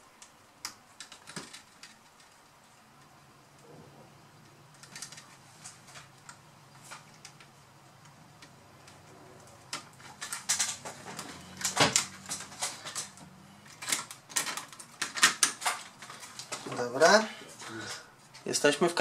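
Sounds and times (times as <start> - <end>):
plastic laptop parts clicking: 4.8 - 9.0.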